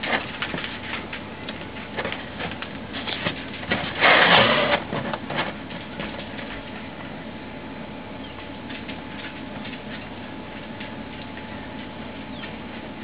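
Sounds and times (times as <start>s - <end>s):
rustling scrape: 0.0s - 6.5s.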